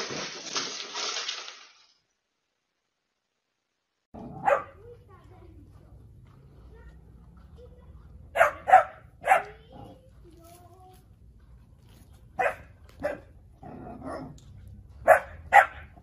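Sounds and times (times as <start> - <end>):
dogs barking: 4.2 - 4.9, 8.3 - 10.1, 12.4 - 14.4, 15.0 - 16.0.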